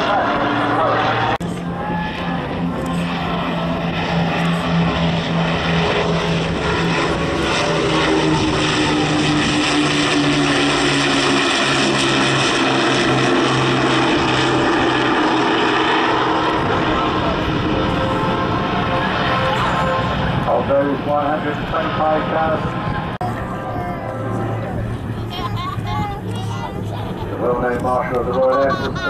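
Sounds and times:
propeller plane engines droning: 0.0 - 29.0.

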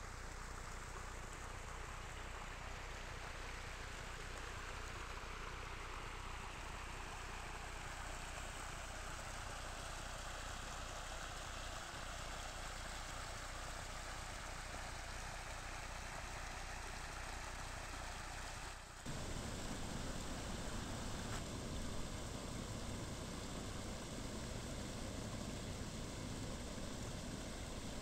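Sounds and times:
floodwater rushing over ground: 0.1 - 28.0.

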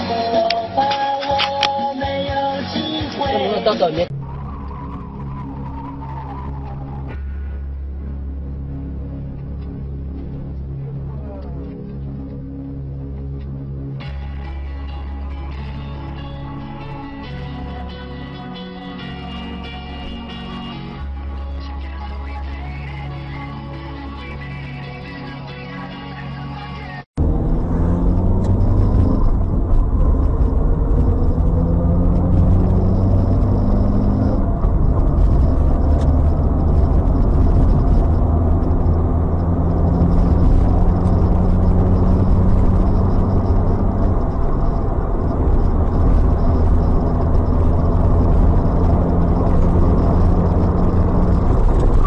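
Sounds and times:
car engine and road rumble: 0.0 - 52.0.

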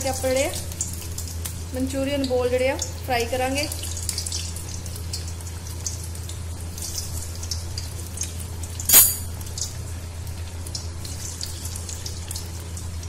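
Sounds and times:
food frying in oil: 0.0 - 8.8, 9.4 - 13.0.

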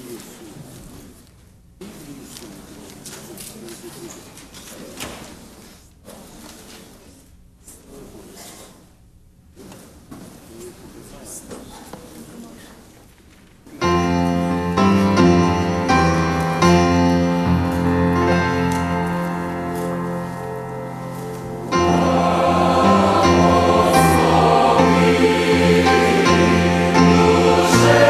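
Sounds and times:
grand piano chords: 13.8 - 28.0
mixed choir singing: 21.5 - 28.0.

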